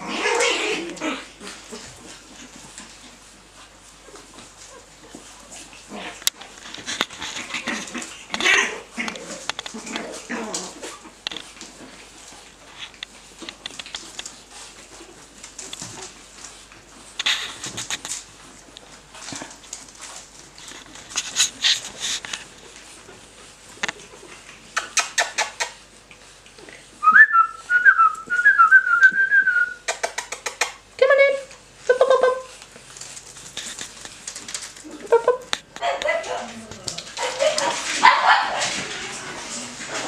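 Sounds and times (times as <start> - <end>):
puppy claws skittering on tiles: 4.0 - 26.7, 29.0 - 30.9, 31.9 - 40.0.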